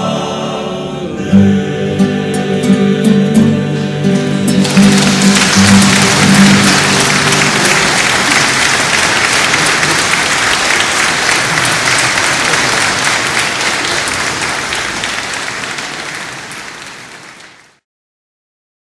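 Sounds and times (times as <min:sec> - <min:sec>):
sustained music notes: 0:00.0 - 0:12.9
audience applause: 0:04.5 - 0:17.8.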